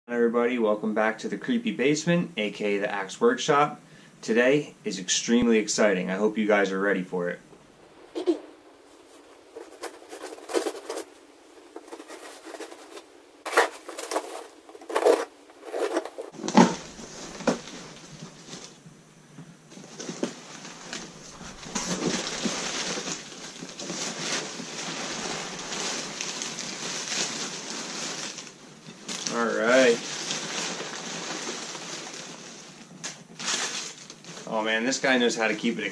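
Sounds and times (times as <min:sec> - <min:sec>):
crumpled newspaper rustling: 0:08.9 - 0:18.8, 0:19.7 - 0:35.9
packing tape and cardboard ripping: 0:11.8 - 0:18.8, 0:19.9 - 0:34.2.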